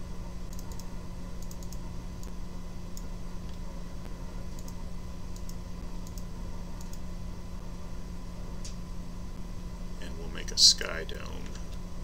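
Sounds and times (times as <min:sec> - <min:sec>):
low hum and hiss: 0:00.0 - 0:12.0
computer mouse clicks: 0:00.5 - 0:03.6, 0:04.5 - 0:07.0.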